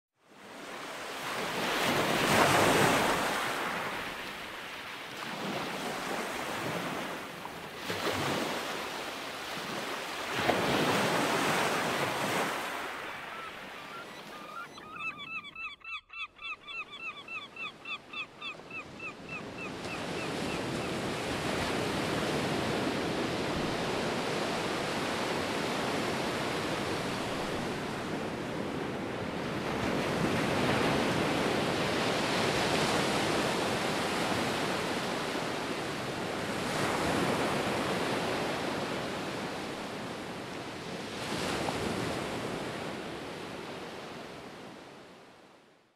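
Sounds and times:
waves breaking on beach: 0:00.3 - 0:14.4, 0:19.8 - 0:45.1
bird calling repeated notes: 0:13.2 - 0:20.6.

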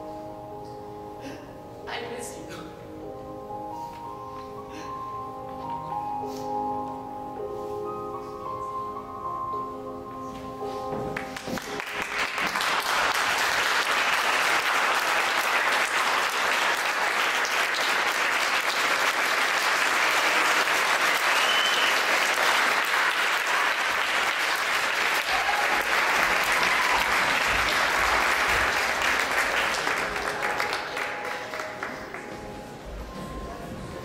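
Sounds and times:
closing music: 0:02.8 - 0:34.0
audience applauding: 0:11.2 - 0:32.5.

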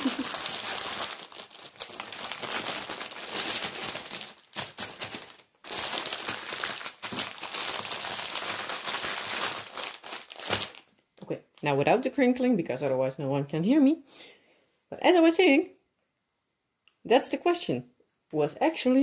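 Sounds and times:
plastic packaging crinkling: 0:00.0 - 0:10.9.

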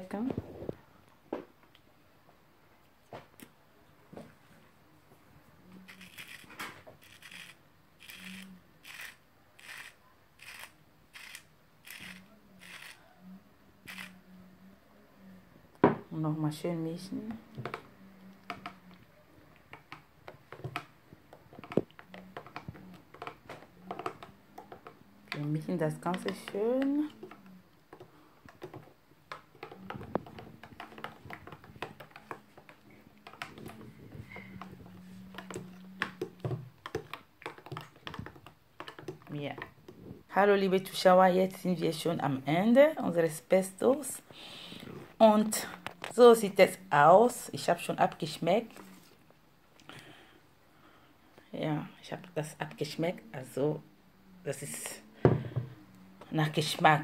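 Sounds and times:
salt grinder crunching: 0:05.9 - 0:13.0.

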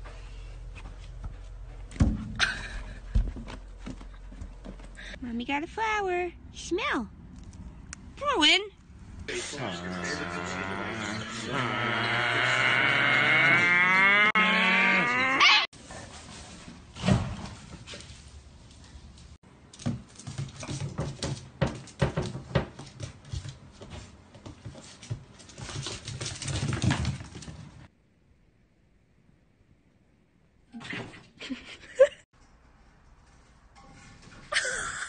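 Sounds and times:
animal's long wavering call: 0:10.2 - 0:15.7.

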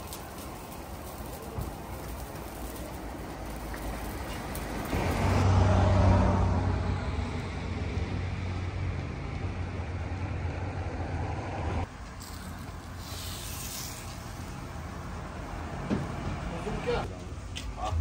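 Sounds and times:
background hiss: 0:11.9 - 0:15.8.

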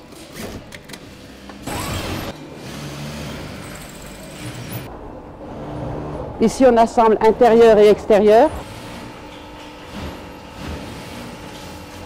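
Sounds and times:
machine hum: 0:00.1 - 0:12.0.

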